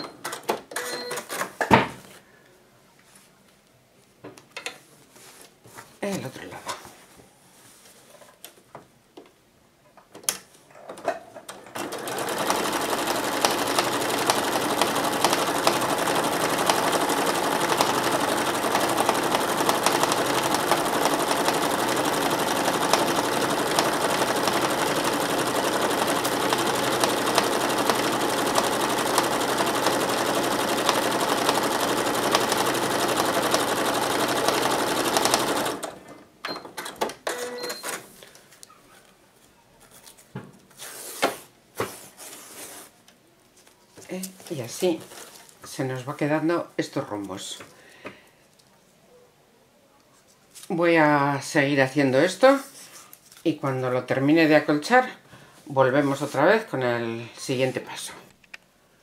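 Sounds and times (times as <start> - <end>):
electric sewing machine running: 11.6 - 36.1.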